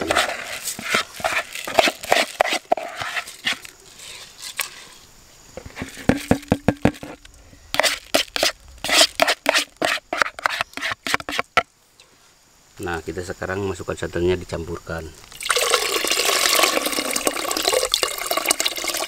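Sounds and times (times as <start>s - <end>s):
ladle scraping bowl: 0.0s - 7.2s.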